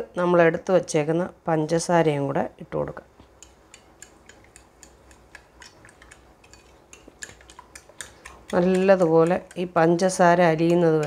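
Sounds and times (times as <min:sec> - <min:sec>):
fork clicking on ceramic plate: 0:03.3 - 0:11.0.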